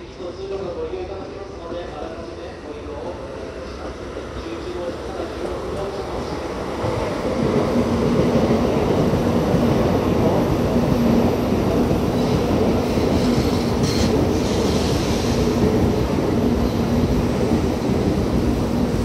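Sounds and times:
train wheels and air rushing: 0:05.0 - 0:19.0.

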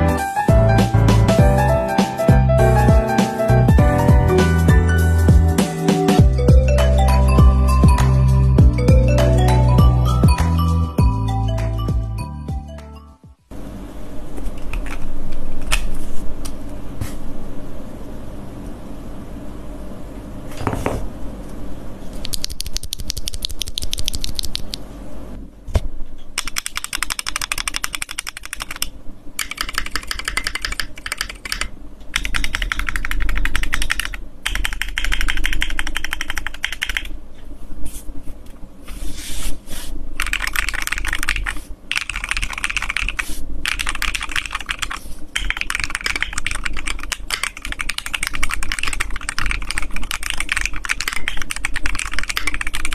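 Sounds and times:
mechanical keyboard typing: 0:22.2 - 0:24.8, 0:26.4 - 0:37.1, 0:40.2 - 0:52.9.

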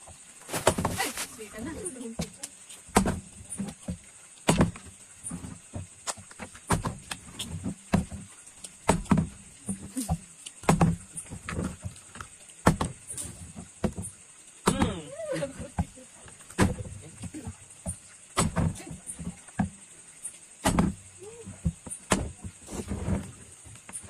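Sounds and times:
person laughing: 0:14.8 - 0:16.1.

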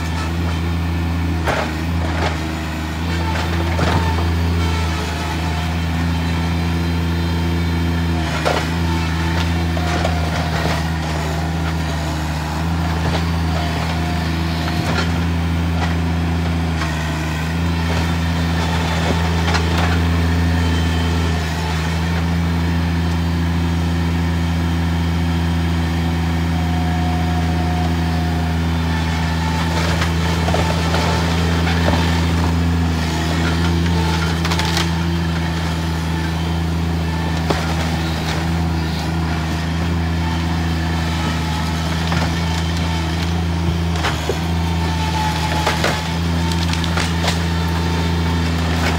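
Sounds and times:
diesel engine under load: 0:00.0 - 0:48.9
timber cracking and breaking: 0:45.3 - 0:47.6.

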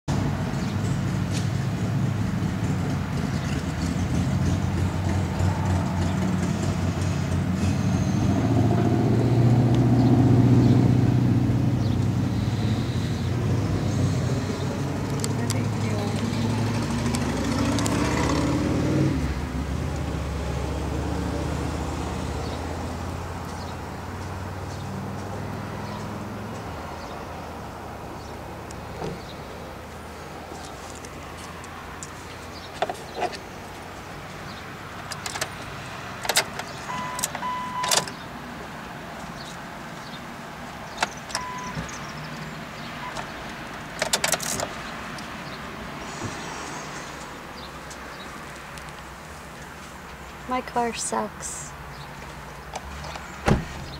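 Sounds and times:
vehicle engine hum from inside car: 0:00.1 - 0:28.7.

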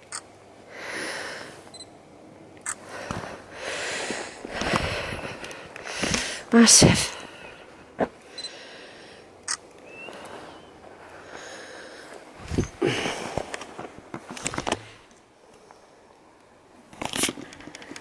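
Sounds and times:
handheld camera bumps and rustles: 0:04.4 - 0:06.3, 0:12.4 - 0:15.0.

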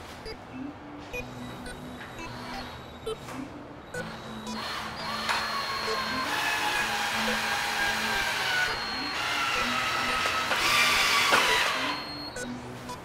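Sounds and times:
cordless drill whining: 0:04.6 - 0:12.0.

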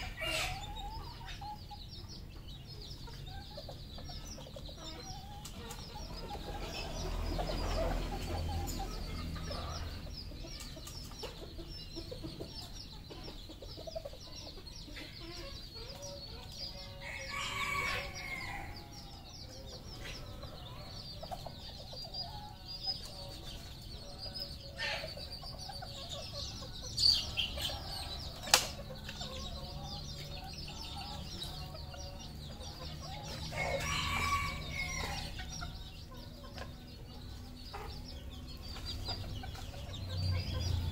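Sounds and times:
rooster crowing: 0:16.9 - 0:18.8, 0:33.5 - 0:35.4.

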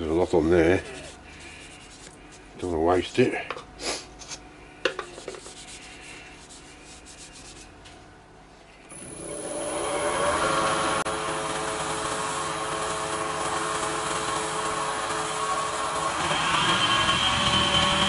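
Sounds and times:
lathe motor whine: 0:08.9 - 0:18.0.

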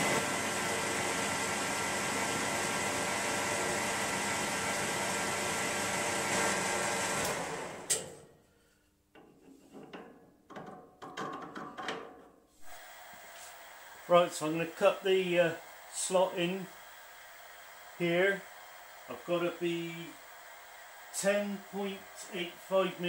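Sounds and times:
metal lathe motor whine: 0:12.6 - 0:23.0.

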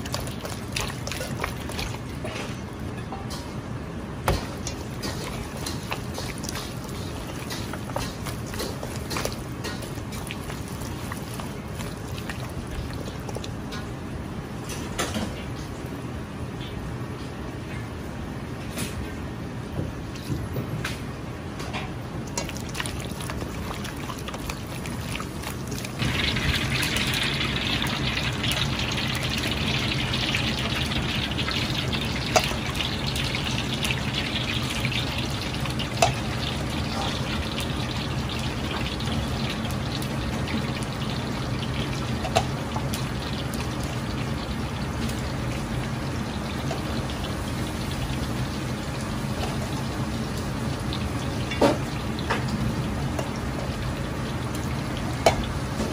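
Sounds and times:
chicken sizzling in hot oil: 0:00.0 - 0:02.5, 0:04.4 - 0:13.8, 0:22.4 - 0:55.9.

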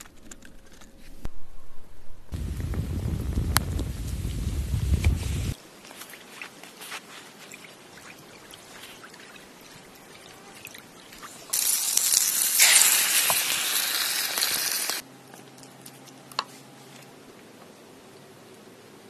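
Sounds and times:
food sizzling in a frying pan: 0:11.5 - 0:15.0.

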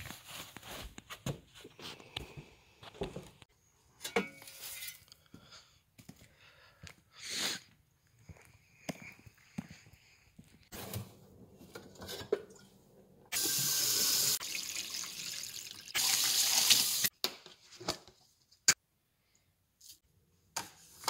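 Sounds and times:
faucet filling glass carafe: 0:13.4 - 0:17.0.

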